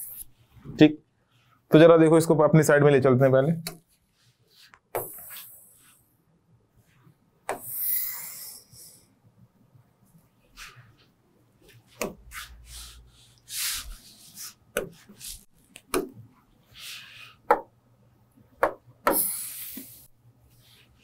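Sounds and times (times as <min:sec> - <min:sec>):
pen scratching strokes: 0:12.3 - 0:15.5.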